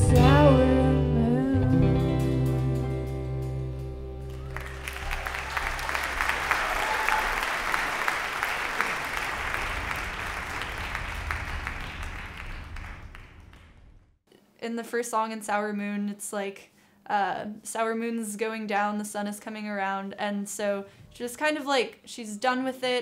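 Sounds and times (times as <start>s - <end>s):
audience applauding: 4.3s - 14.0s.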